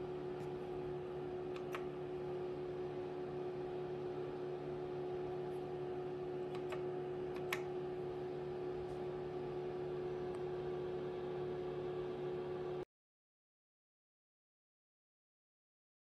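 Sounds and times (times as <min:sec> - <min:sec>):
fan hum: 0:00.0 - 0:12.8.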